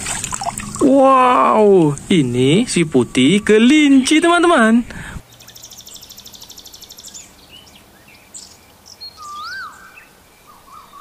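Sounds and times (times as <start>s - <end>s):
birds chirping and whistling: 4.9s - 11.0s.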